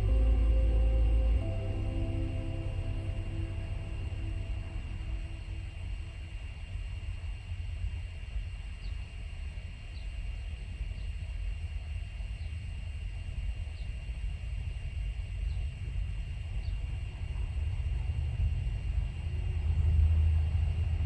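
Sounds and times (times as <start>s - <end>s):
low rumble: 0.0s - 8.0s, 17.1s - 21.0s
thin high whine: 0.0s - 9.7s.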